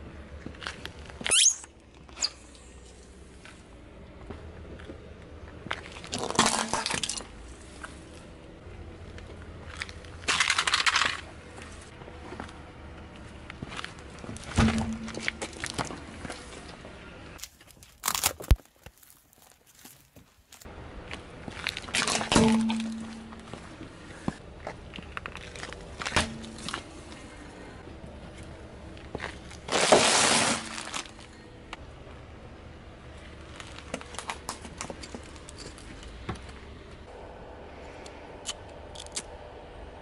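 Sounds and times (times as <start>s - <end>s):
object crunching under tyre: 17.4s - 23.5s, 24.1s - 27.3s, 29.0s - 31.4s.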